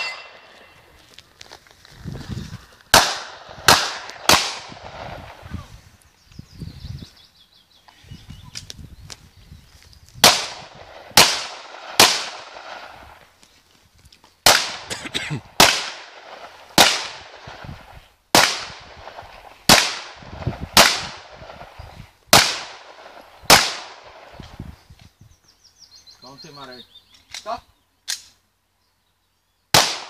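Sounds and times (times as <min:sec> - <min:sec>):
handgun shots echoing: 0:03.0 - 0:04.8, 0:10.2 - 0:12.5, 0:29.8 - 0:30.0.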